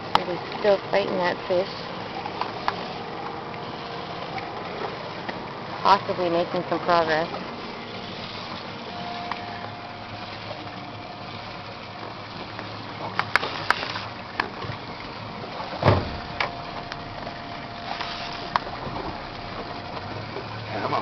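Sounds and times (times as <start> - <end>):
boat engine idling: 0.0 - 21.0
thump: 15.8 - 16.3.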